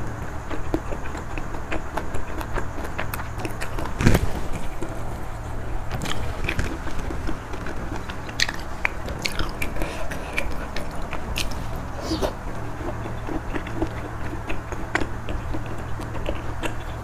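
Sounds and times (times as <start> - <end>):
chewing and biting seafood: 0.0 - 17.0
wet mouth clicks and smacks: 5.9 - 17.0.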